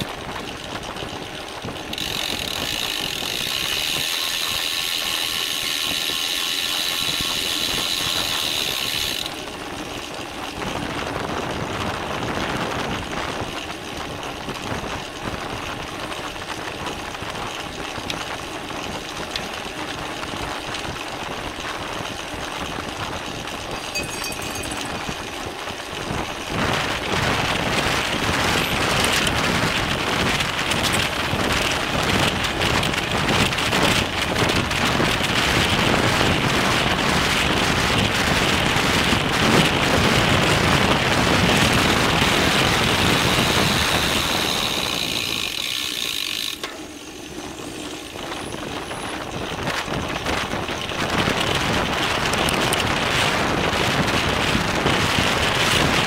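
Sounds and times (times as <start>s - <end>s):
bicycle freehub ticking: 0.0s - 12.4s, 13.0s - 51.6s
wind noise: 10.5s - 45.7s, 48.1s - 56.0s.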